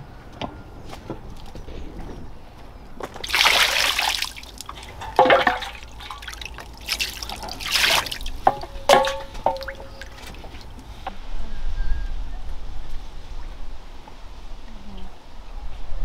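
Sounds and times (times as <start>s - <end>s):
fish splashing in water: 3.1s - 10.7s.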